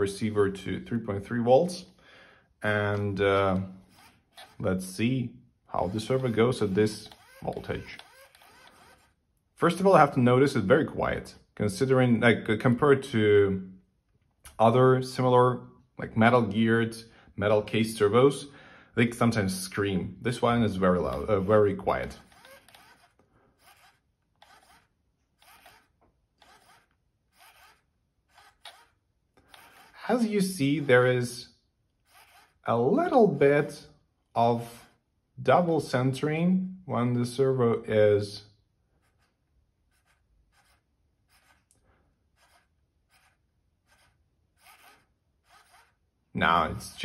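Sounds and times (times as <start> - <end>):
faint servo motor whir: 3.8 - 4.6, 5.8 - 9.2, 22.1 - 31.0, 32.0 - 32.7, 34.7 - 35.0, 39.0 - 46.1.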